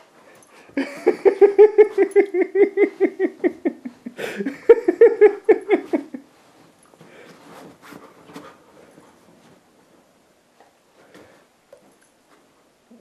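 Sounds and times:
faint rustling: 0.0 - 13.0
person laughing: 0.8 - 6.2.

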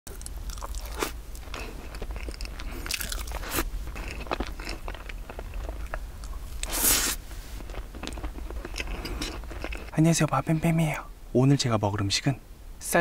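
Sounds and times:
person chewing: 0.1 - 10.0.

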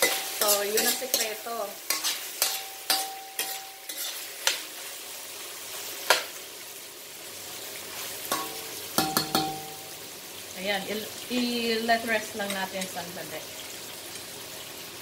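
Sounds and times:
chicken wings sizzling in a pan: 0.0 - 15.0
utensil knocking against pan: 8.4 - 9.8.

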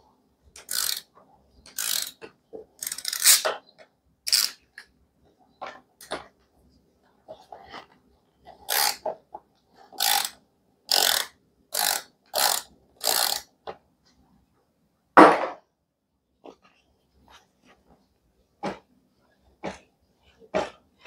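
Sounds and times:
ratchet wrench clicking: 0.6 - 1.1, 1.7 - 2.2, 2.8 - 3.4, 4.3 - 4.6, 8.7 - 9.0, 10.0 - 13.5.

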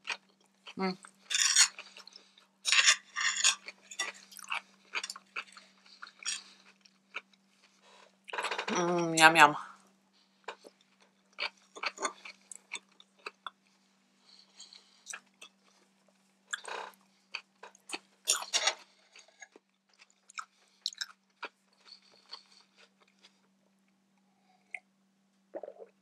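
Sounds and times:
person chewing and biting food: 3.5 - 8.4, 19.1 - 23.4.

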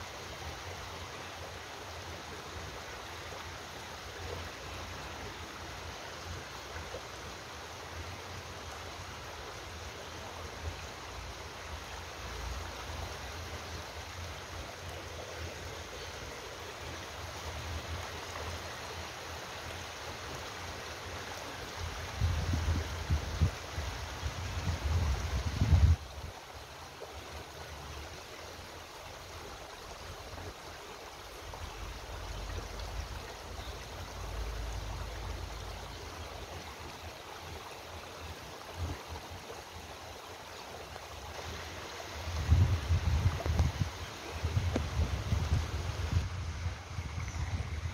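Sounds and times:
flowing stream water rushing: 0.0 - 47.9
wind buffeting on microphone: 22.1 - 26.1, 42.3 - 47.9.

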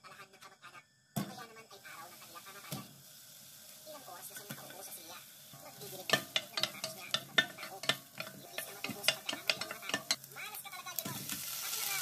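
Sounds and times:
onion sizzling: 1.8 - 12.0
spatula knocking and scraping pot: 5.6 - 10.3.

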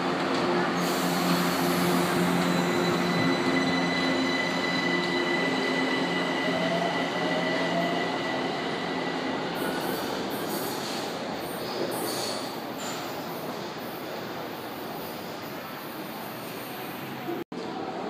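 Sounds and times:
electric train accelerating: 0.0 - 10.2.

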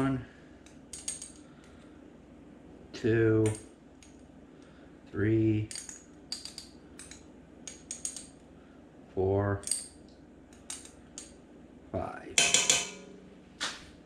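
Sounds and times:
metal spoon clinking against pot: 12.4 - 13.2.

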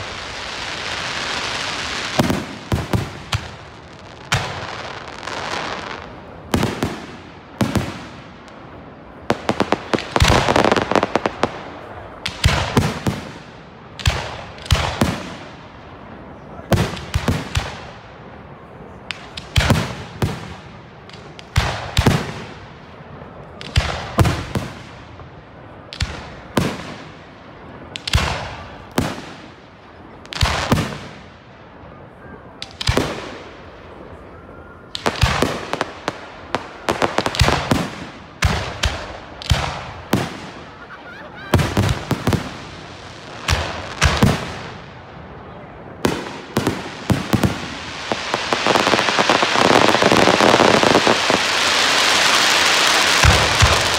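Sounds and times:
firework crackling: 0.0 - 18.0, 32.4 - 53.9
firework shells bursting: 46.1 - 53.9.

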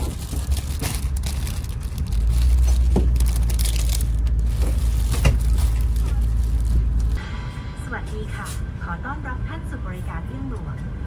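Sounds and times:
aircraft cabin rumble: 0.0 - 7.2
plastic wrapping crinkling: 0.0 - 7.2.

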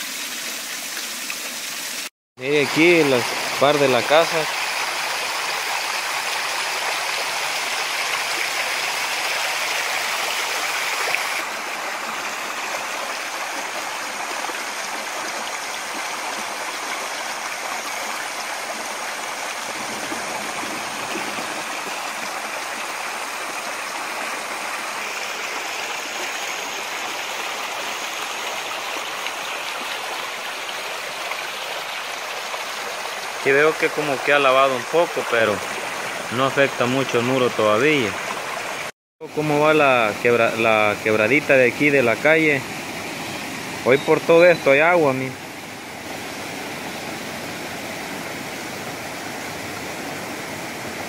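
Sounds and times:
creek water rushing over rocks: 0.0 - 51.0.

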